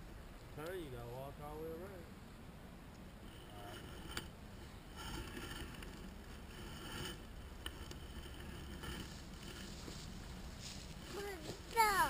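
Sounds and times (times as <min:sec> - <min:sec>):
fishing reel whirring: 0:03.3 - 0:09.7.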